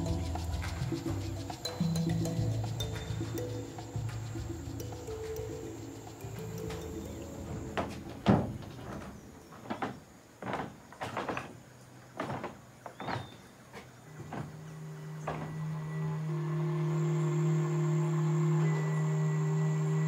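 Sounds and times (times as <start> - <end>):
footsteps: 0.0 - 15.8
wooden knocks: 6.5 - 11.6, 12.2 - 14.6, 15.3 - 15.5.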